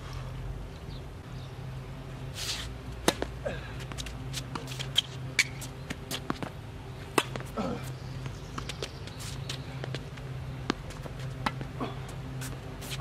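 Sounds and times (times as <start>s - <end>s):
racket hitting tennis ball: 2.4s - 11.8s
tennis ball bouncing: 2.9s - 13.0s.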